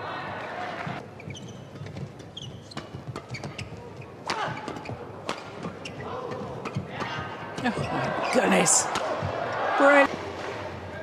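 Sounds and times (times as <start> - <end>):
shoes squeaking on court floor: 0.8 - 8.7
rackets hitting shuttlecock: 8.8 - 9.4.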